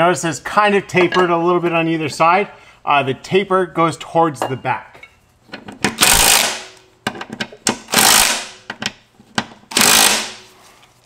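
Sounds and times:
impact wrench hammering: 5.9 - 10.4.

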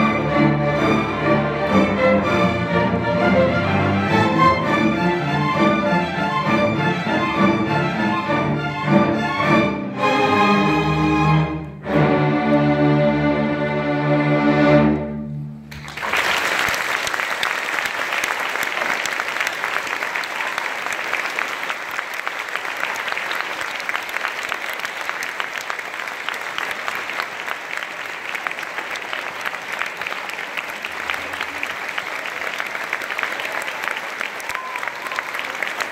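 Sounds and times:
audience applause: 15.7 - 35.9.

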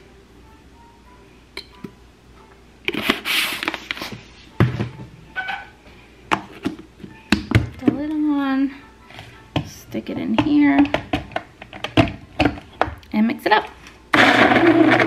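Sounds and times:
rustling and scraping: 2.9 - 5.8.

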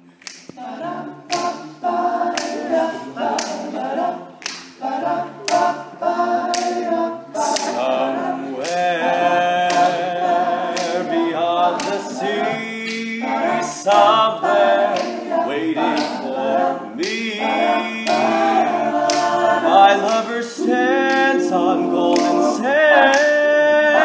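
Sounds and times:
male group singing a cappella: 0.0 - 24.0
finger snaps: 0.1 - 1.7, 4.4 - 4.8, 6.5 - 6.8, 10.8 - 11.0, 19.1 - 19.4, 22.1 - 22.4, 23.1 - 23.4.

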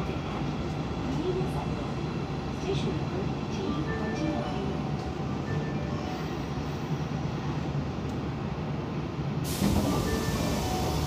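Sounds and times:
subway train running gear rumble: 0.0 - 11.0
hiss of air: 9.4 - 11.0.

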